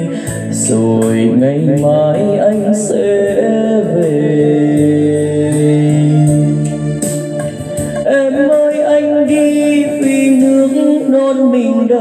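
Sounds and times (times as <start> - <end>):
man singing with vibrato: 0.0 - 12.0
backing accompaniment: 1.9 - 10.6.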